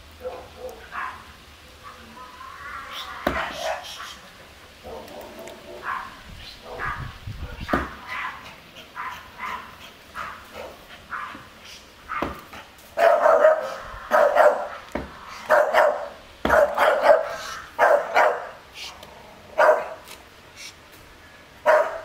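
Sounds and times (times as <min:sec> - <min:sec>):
dog barking: 0:00.2 - 0:01.3, 0:03.4 - 0:04.0, 0:04.8 - 0:08.4, 0:09.0 - 0:11.5, 0:13.0 - 0:14.8, 0:15.4 - 0:18.6, 0:19.6 - 0:20.0, 0:21.6 - 0:22.0.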